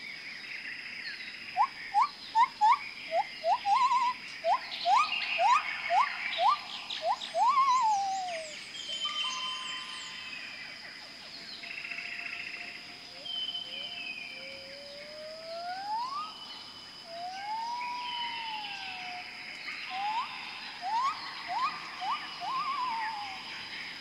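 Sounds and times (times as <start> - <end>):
bird whistling: 1.6 - 10.1, 15.7 - 16.4, 19.9 - 23.5.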